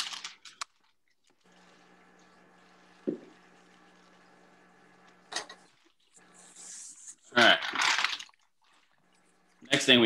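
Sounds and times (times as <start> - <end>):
steady low hum: 1.5 - 7.0.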